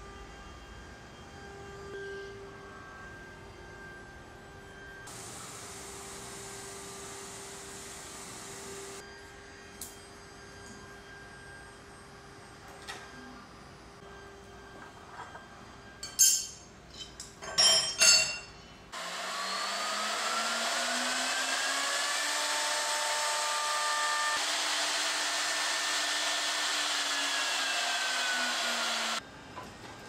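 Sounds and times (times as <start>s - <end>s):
router spindle motor whine: 4.7s - 9.6s, 19.0s - 29.2s.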